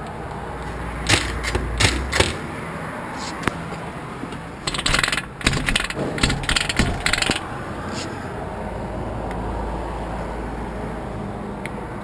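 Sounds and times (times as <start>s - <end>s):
lock click: 1.0s - 2.5s, 4.4s - 7.5s
metal clinking and rattling: 1.0s - 2.5s, 4.3s - 7.5s.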